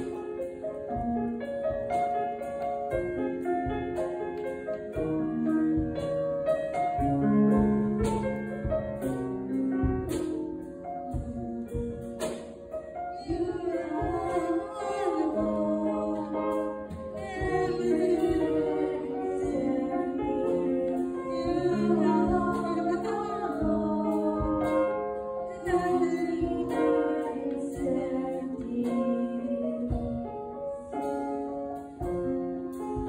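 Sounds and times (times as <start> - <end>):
grand piano playing chords: 0.0 - 33.0
person singing: 13.2 - 30.2.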